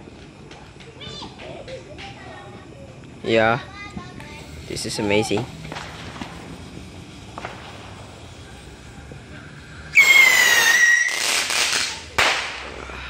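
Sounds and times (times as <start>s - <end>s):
rocket hiss: 3.2s - 13.0s
whistling rocket firework: 4.4s - 13.0s
firework bang in the air: 5.6s - 8.2s, 10.0s - 12.8s.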